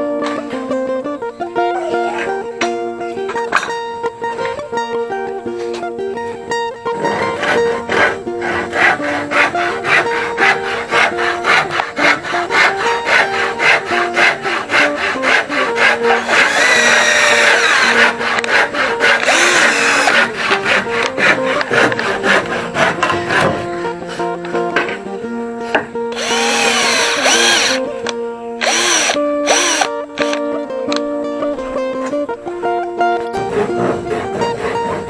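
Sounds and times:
strummed ukulele music: 0.0s - 16.5s, 17.5s - 28.6s, 29.2s - 35.0s
cordless drill driving a screw: 15.8s - 20.3s, 26.1s - 27.8s, 28.6s - 30.4s.

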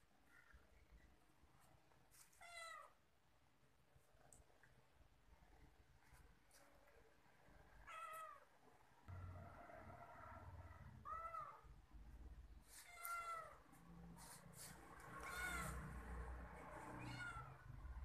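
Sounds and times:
cat meowing: 7.8s - 8.5s, 11.0s - 11.7s, 12.8s - 13.6s, 15.2s - 15.9s, 16.9s - 17.7s.

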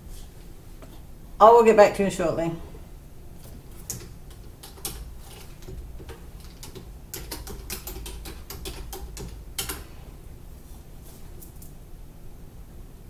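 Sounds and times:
typing on computer keyboard: 3.8s - 9.9s.

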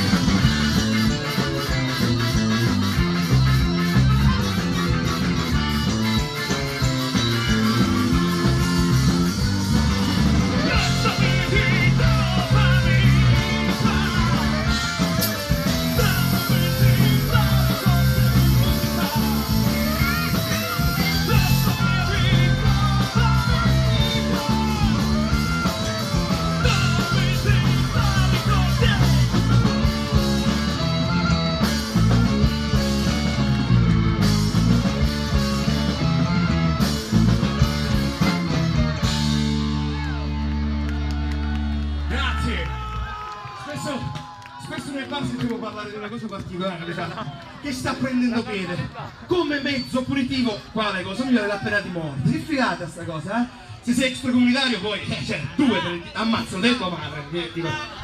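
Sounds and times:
clarinet: 0.0s - 11.6s
live folk-rock band playing: 0.0s - 44.4s, 45.2s - 58.0s.

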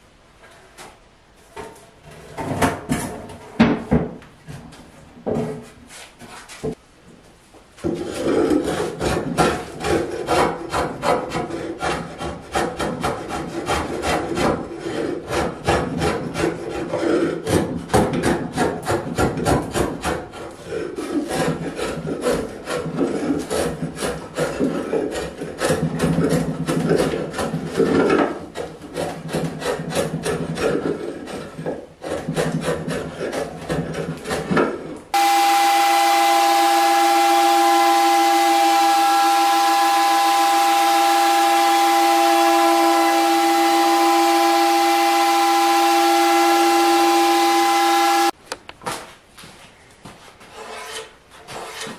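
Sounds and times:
drawknife scraping wood: 7.8s - 17.7s, 18.3s - 35.0s, 50.5s - 51.9s
orbital sander humming: 35.2s - 48.4s.

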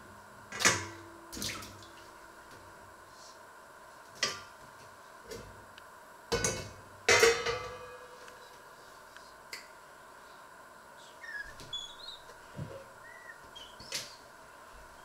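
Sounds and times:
metal pots clanking: 6.4s - 8.2s.

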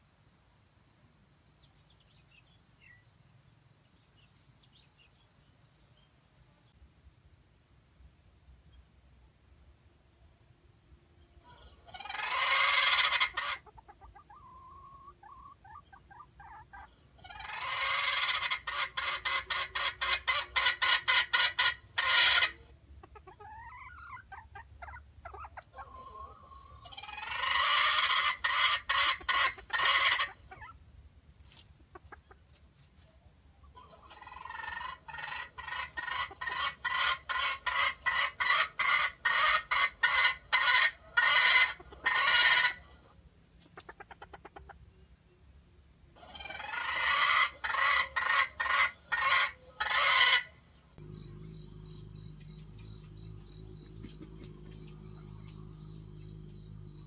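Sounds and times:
hen clucking: 11.4s - 45.3s, 46.1s - 57.0s
insects droning: 51.0s - 57.0s.

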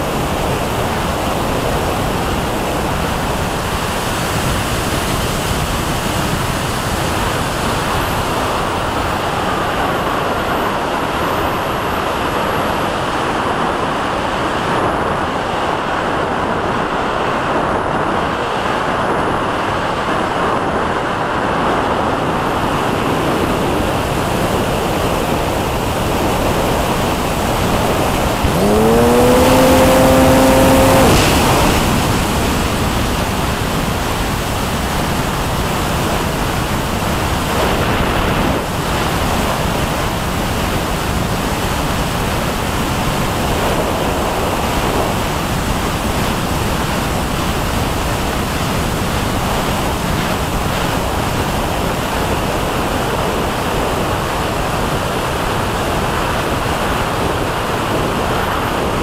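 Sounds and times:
airflow rushing: 25.6s - 34.8s
rising tone with overtones: 28.0s - 33.4s.

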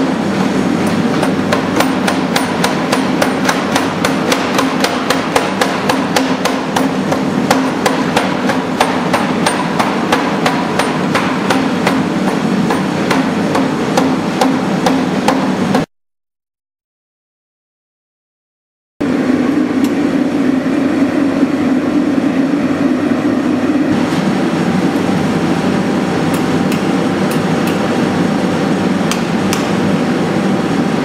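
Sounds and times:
machine running noise: 0.0s - 15.9s, 19.0s - 31.0s
spring hammer striking hot metal: 0.8s - 15.9s.

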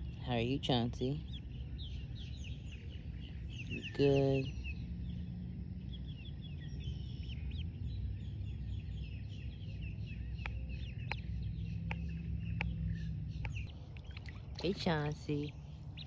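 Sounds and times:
duckling peeping: 10.2s - 16.0s.

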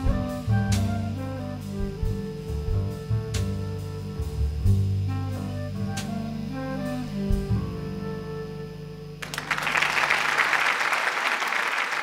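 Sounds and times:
audience applause: 9.2s - 12.0s.

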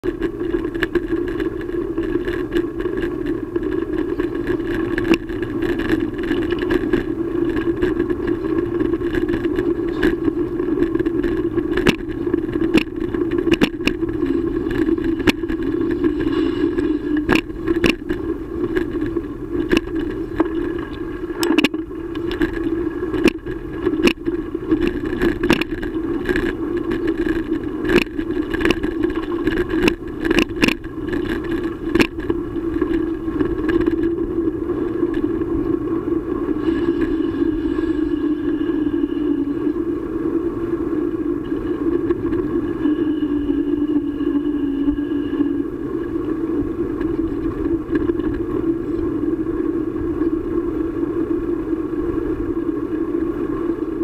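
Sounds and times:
bicycle knocking and rattling: 0.0s - 51.7s
wind and tyres hum: 0.0s - 54.0s.

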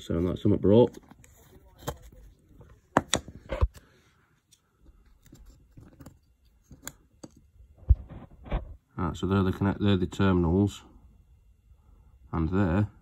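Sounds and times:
faint handling noise: 0.0s - 8.9s.

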